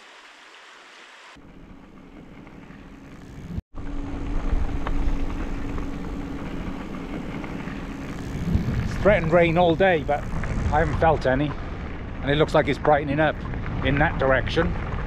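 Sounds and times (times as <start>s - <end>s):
steady low hum: 1.4s - 15.0s
wind on microphone: 3.8s - 15.0s
tyres rolling on gravel: 4.3s - 15.0s.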